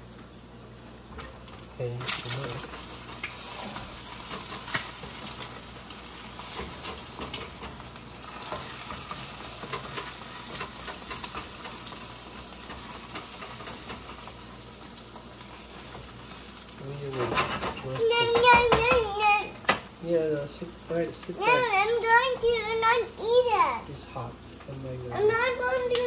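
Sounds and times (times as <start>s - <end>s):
food sizzling in a pan: 0.0s - 26.0s
metal utensils clicking and scraping: 2.0s - 19.3s.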